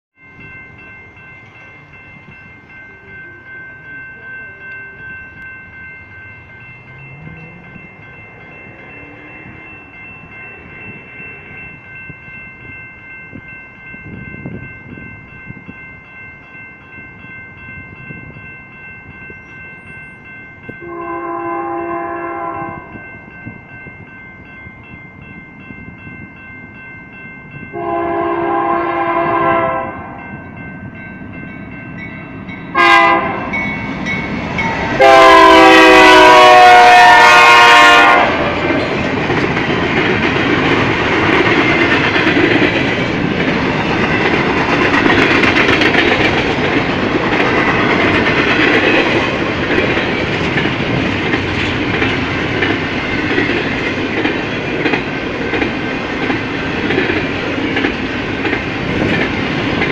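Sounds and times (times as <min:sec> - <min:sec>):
locomotive air horn blasts: 0:20.8 - 0:23.0, 0:27.7 - 0:30.2, 0:32.7 - 0:33.5, 0:35.0 - 0:38.6.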